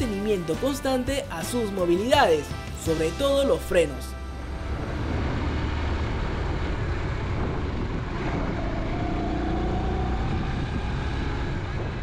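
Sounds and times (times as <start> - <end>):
road and wind noise: 1.8 - 12.0
motorcycle engine rumble: 4.1 - 12.0.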